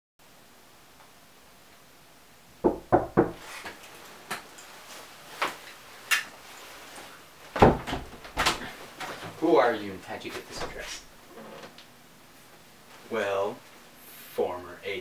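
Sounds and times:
knocks on a door: 2.6 - 3.4.

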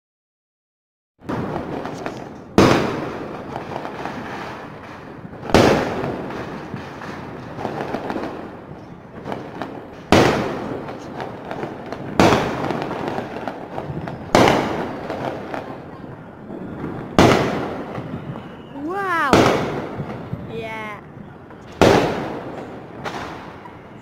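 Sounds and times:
fireworks bangs: 1.2 - 24.0
small firework pops: 1.3 - 16.0, 21.6 - 23.8.

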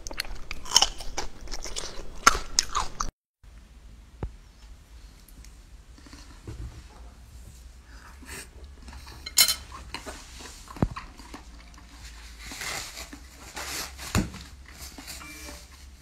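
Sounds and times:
tableware clattering: 9.1 - 9.8
paper tissue rustling: 11.9 - 16.0.

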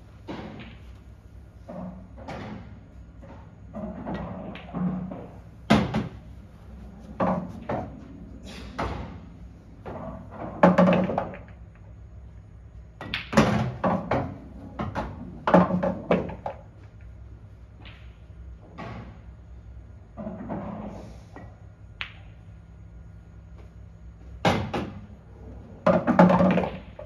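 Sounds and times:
balls rolling through return channel: 0.0 - 12.0, 13.0 - 19.4, 20.0 - 22.6, 24.3 - 27.0
pool balls clacking: 0.2 - 11.9, 13.0 - 19.2, 24.4 - 27.0.

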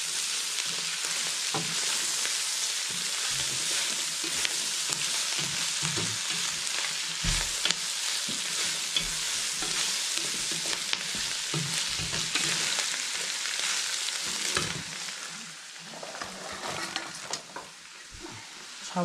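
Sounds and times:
meat and vegetables sizzling in wok: 0.0 - 19.0
wooden spatula scraping pan: 2.8 - 12.8, 15.8 - 17.7.

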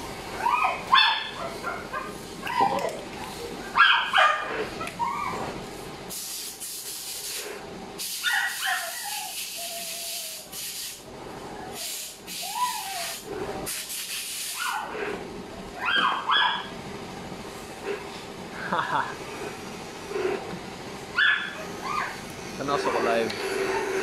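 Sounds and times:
dog whining and yelping: 0.4 - 5.5, 8.2 - 10.4, 12.4 - 13.3, 14.6 - 14.9, 15.8 - 16.7, 21.2 - 22.2
hissing bursts: 6.1 - 11.1, 11.8 - 14.8.

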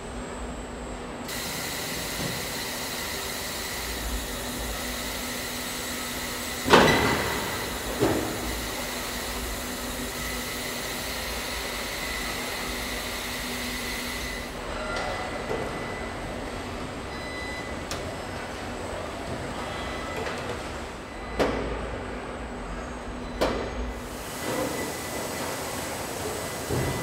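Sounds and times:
machinery hum: 0.0 - 27.0
loud metallic clunk: 6.6 - 8.4.

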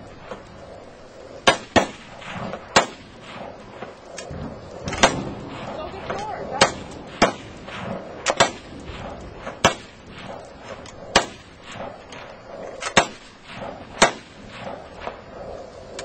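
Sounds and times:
rifle shots: 1.4 - 3.5, 4.9 - 10.4, 11.1 - 11.9, 12.8 - 14.8.

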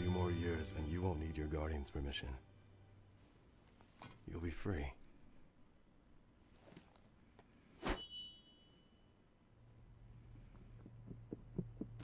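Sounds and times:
high ringing tone: 7.9 - 9.2.

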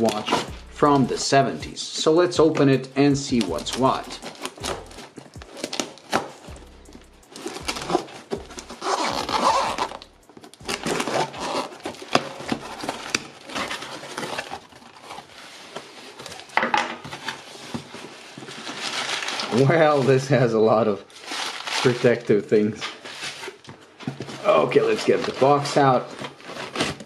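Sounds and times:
cardboard flaps scraping: 0.0 - 1.0, 7.3 - 20.4
tape ripping and peeling: 3.0 - 16.6
knife slitting packing tape: 3.4 - 6.6, 7.3 - 15.2.

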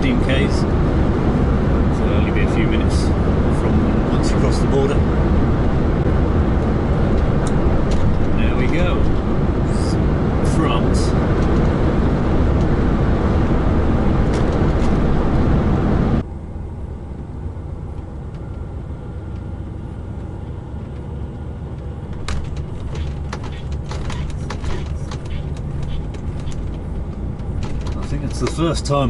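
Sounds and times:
road and engine noise: 0.0 - 29.0
truck engine low rumble: 0.0 - 29.0
clicks and knocks: 22.1 - 28.6.

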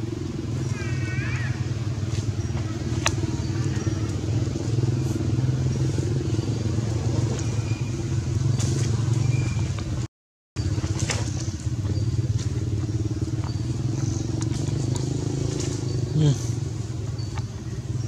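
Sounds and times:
motor engine humming: 0.0 - 18.0.

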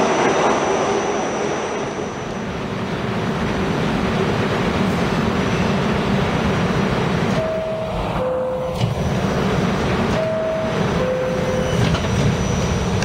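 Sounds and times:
subway train rumble and hiss: 0.0 - 13.0
door-closing chime tone: 7.4 - 9.2, 10.1 - 13.0.

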